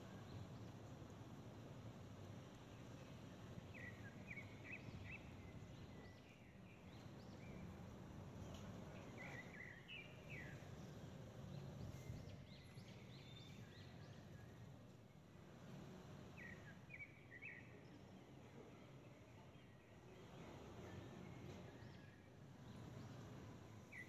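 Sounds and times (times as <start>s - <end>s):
faint background hiss: 0.0s - 24.0s
faint bird chirps: 2.9s - 7.8s, 8.4s - 14.7s, 16.4s - 24.0s.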